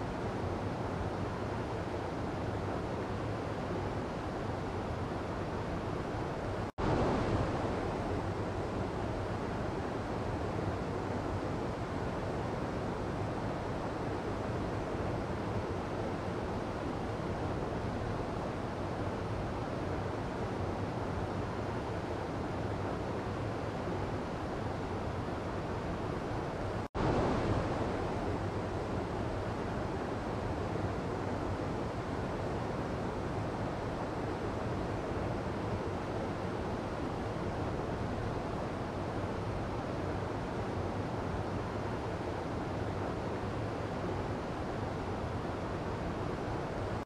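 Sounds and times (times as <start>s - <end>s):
stream rushing over boulders: 6.8s - 10.9s, 24.3s - 47.0s.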